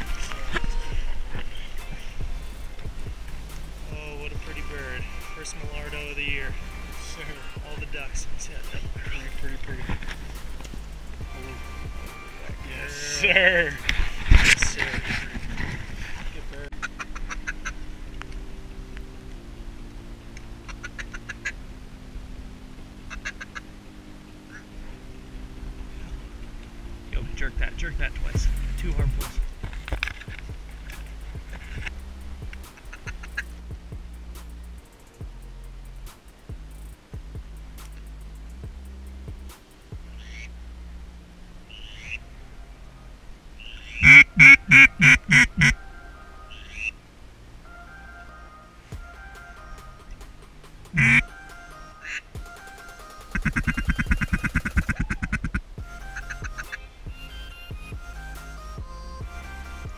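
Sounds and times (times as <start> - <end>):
ducks quacking: 11.2 - 17.9, 20.5 - 21.6, 23.0 - 23.7, 32.6 - 33.6, 40.1 - 40.5, 41.7 - 42.2, 43.6 - 45.9, 50.9 - 51.4, 53.3 - 57.9
duck call quacks: 20.7 - 21.6, 23.1 - 23.6, 43.6 - 45.9, 51.0 - 51.4, 53.3 - 57.9.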